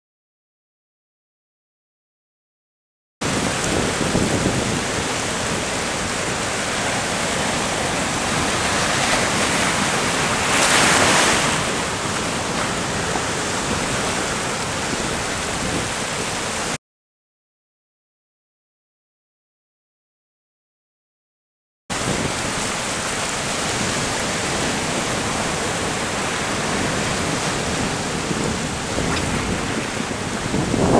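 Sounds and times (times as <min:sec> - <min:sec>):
surf breaking over rocks: 0:03.2 - 0:16.8, 0:21.9 - 0:30.9.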